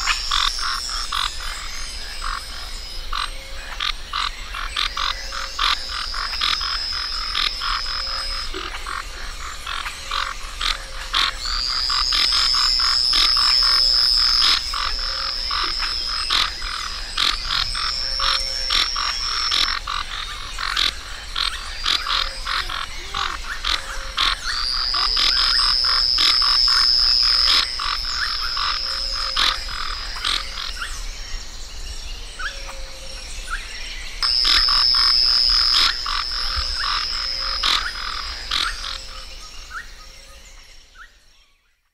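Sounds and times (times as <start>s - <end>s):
tree frogs clicking: 0.0s - 30.9s, 34.2s - 39.9s
high steady whistling tone: 5.0s - 9.8s, 10.5s - 20.5s, 23.4s - 30.5s, 34.2s - 40.1s.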